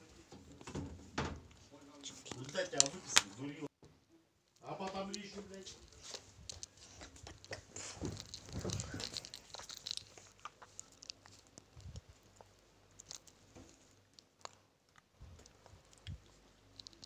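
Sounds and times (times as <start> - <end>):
soft rustling: 4.8 - 14.1.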